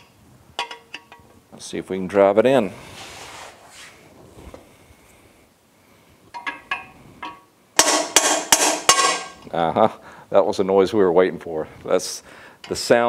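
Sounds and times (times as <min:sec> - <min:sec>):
hammer striking metal: 0:06.4 - 0:09.4.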